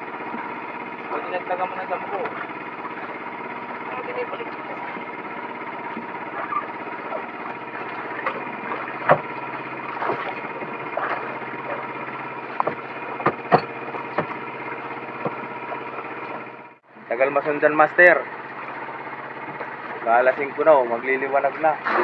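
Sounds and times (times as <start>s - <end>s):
small generator running: 0.0s - 22.0s
gear knocking on deck: 7.5s - 16.4s.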